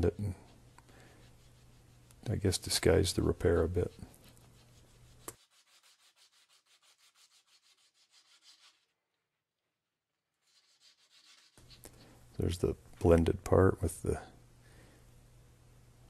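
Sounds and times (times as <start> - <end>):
faint hand sanding: 0.0 - 8.9, 10.4 - 12.6.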